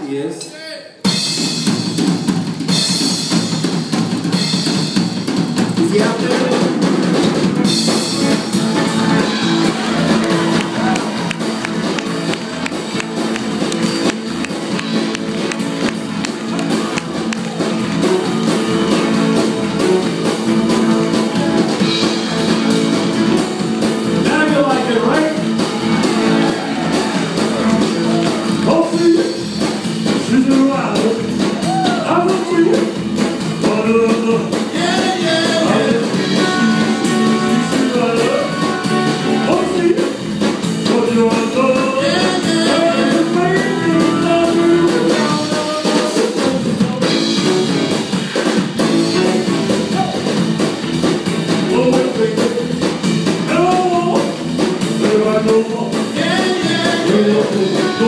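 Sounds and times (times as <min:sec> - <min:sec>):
rock band playing: 0:00.4 - 0:58.0
man singing: 0:24.2 - 0:25.5, 0:27.8 - 0:29.4, 0:30.2 - 0:47.9, 0:51.5 - 0:58.0.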